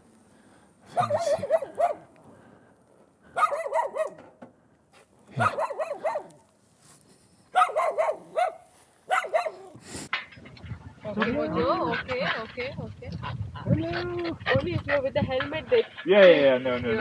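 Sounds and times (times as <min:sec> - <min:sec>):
dog barking: 0:00.9 - 0:02.1, 0:03.3 - 0:04.2, 0:05.3 - 0:06.4, 0:07.5 - 0:09.8.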